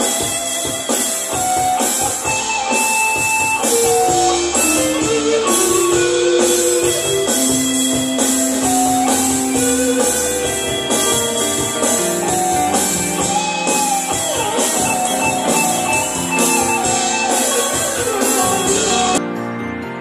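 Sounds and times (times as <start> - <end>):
live band playing: 0.0 - 19.3.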